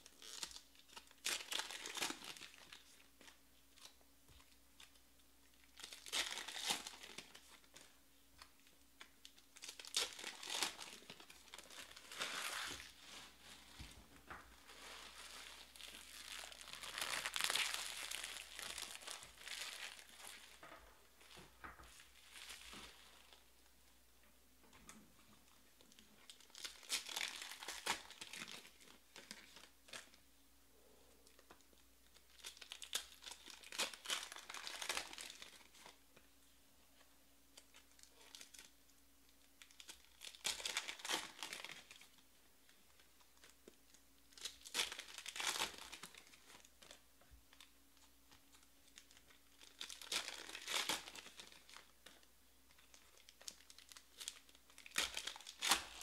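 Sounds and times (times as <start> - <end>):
foil wrappers tearing and crinkling: 14.7 - 20.5, 44.4 - 47.0, 49.0 - 52.2, 52.9 - 56.0.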